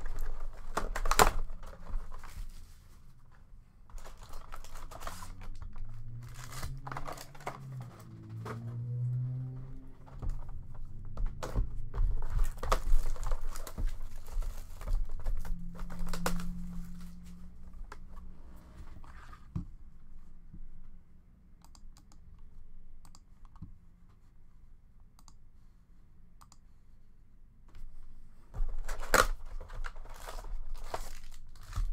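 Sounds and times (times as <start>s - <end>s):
cardboard box clicks and knocks: 10.1s - 16.4s.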